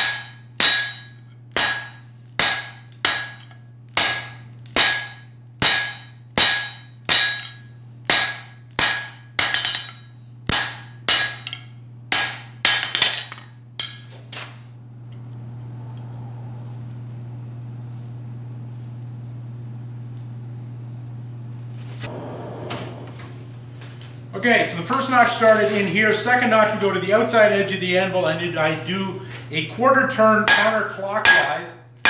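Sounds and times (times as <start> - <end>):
hammer striking steel on anvil: 0.0 - 14.1, 30.4 - 31.7
steady low hum: 0.0 - 32.0.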